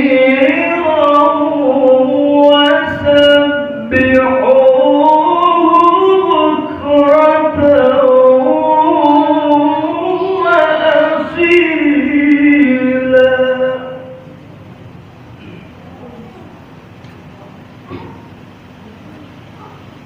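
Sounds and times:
person chanting melodically: 0.0 - 14.4.

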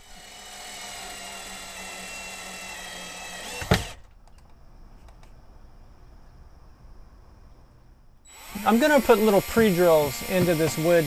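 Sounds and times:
cordless drill driving a screw: 0.0 - 4.0, 8.3 - 11.0.

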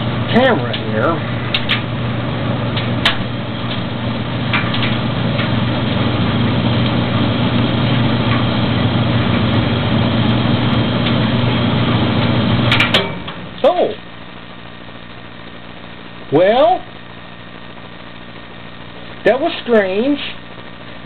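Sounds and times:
gas dryer humming: 0.0 - 21.0
dryer sharp clicks: 1.5 - 1.9, 2.7 - 3.9, 4.5 - 5.6, 12.7 - 13.4.

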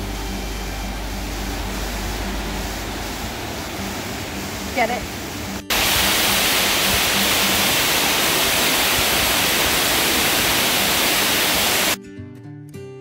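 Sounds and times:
strummed acoustic guitar music: 0.0 - 5.7, 12.0 - 13.0
waterfall crashing onto rock: 1.9 - 12.0.

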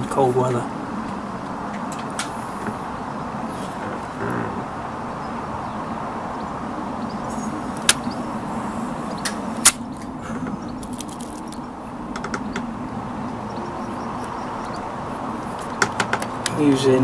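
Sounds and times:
background hum: 0.0 - 17.0
air rifle clicks: 7.8 - 8.1, 9.2 - 10.1.

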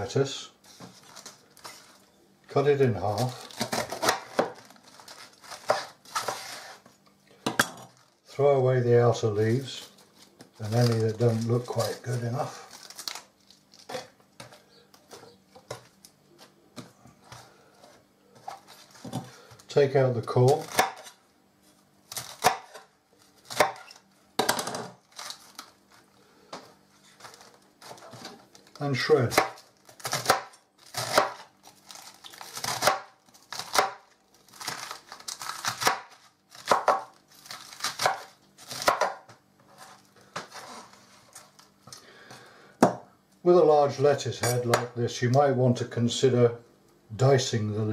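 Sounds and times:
knife slicing lettuce: 3.0 - 6.8, 29.0 - 33.9
lettuce leaves rustling: 9.4 - 13.9, 30.8 - 33.7, 34.4 - 38.9.

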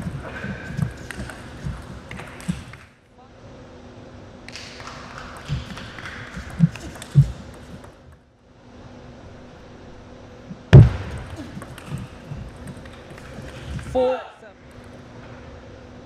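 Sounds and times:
table tennis ball hits: 10.8 - 12.2.

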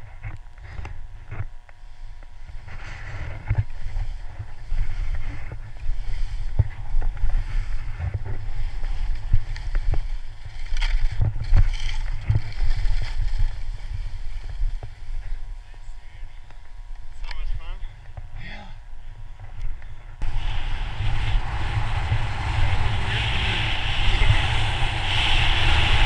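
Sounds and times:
skis scraping on snow: 2.0 - 16.2, 20.2 - 26.0
wind buffeting microphone: 19.2 - 26.0
spraying snow hiss: 20.2 - 26.0.

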